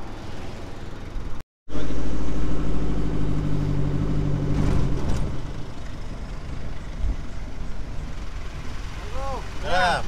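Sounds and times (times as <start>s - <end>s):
road and tyre noise: 0.0s - 10.0s
vehicle engine humming: 0.0s - 10.0s.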